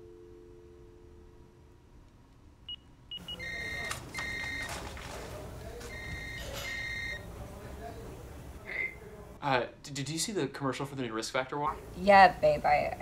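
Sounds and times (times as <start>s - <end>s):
room background noise: 0.0s - 13.0s
electronic beeps: 2.7s - 4.8s, 5.9s - 7.2s
phone dial tone: 3.2s - 5.2s.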